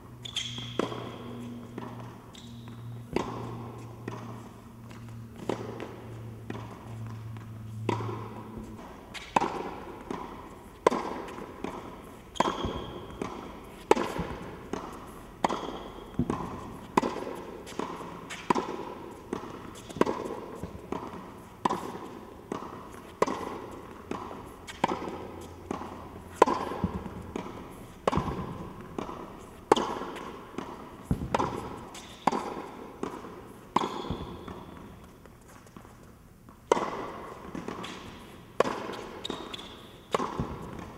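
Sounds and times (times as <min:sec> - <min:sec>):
rackets hitting tennis ball: 0:00.1 - 0:40.9
tennis ball bouncing: 0:00.1 - 0:40.9.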